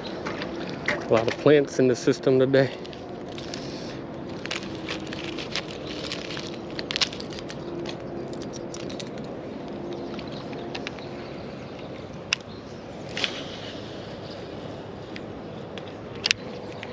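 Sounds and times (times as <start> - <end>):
fishing rod handling crackles: 2.8 - 11.1, 11.7 - 13.9.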